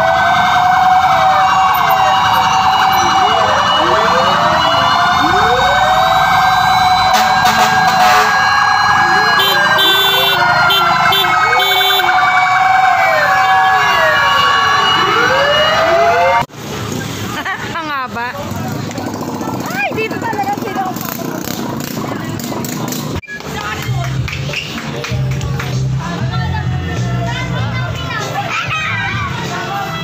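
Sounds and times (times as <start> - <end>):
fire truck sirens wailing: 0.0 - 16.5.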